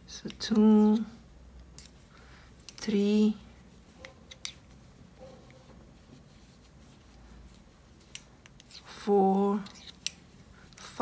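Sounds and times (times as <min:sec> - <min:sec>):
knitting needles clicking: 0:02.6 - 0:03.1, 0:04.0 - 0:04.8, 0:07.5 - 0:11.0.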